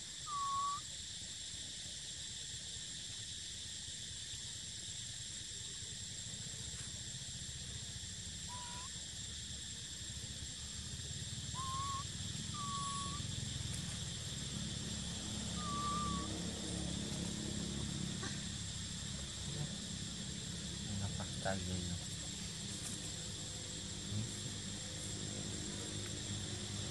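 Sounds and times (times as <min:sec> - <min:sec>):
insects droning: 0:00.0 - 0:26.9
whistled animal calls: 0:00.2 - 0:00.8, 0:08.5 - 0:09.0, 0:11.5 - 0:13.4, 0:15.4 - 0:16.4.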